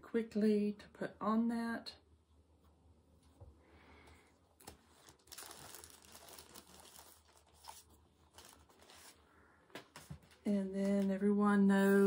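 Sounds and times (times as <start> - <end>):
packaging crinkling: 4.6 - 9.2.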